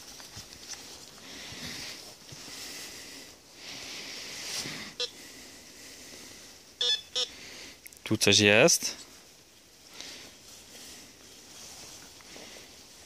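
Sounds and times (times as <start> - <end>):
metal detector beep: 5.0 - 5.2, 6.8 - 7.3.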